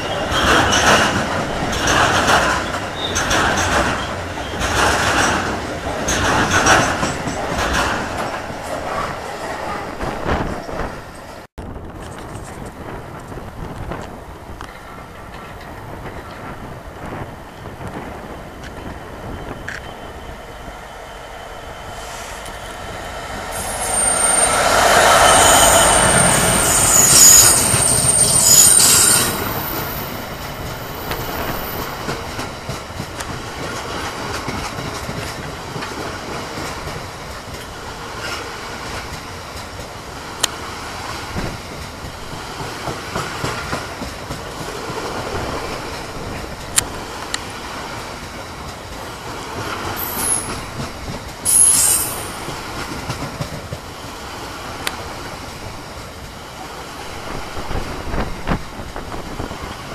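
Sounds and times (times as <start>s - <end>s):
train wheel squeal: 0.0s - 5.5s, 17.5s - 32.5s, 49.6s - 53.2s
wheels clicking on track: 0.0s - 9.0s
train rolling rumble: 0.0s - 59.9s.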